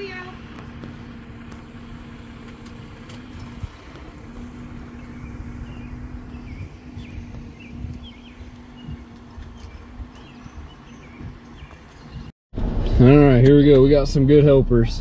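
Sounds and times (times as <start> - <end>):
birds chirping: 0.0 - 12.3
car engine idling: 0.0 - 15.0.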